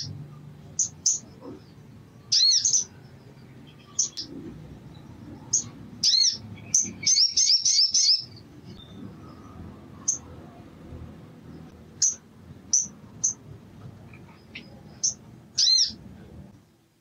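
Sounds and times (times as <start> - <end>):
bird chirping high: 0.0 - 10.4, 11.4 - 13.5, 14.1 - 16.0.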